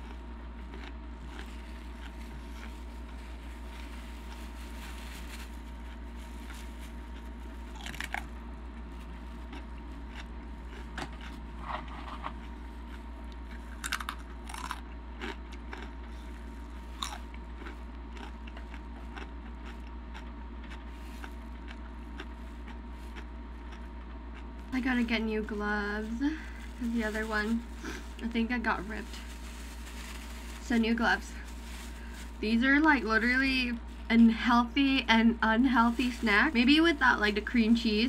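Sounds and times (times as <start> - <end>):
crunching and chewing chips: 0.0 - 34.8
low hum: 0.0 - 38.0.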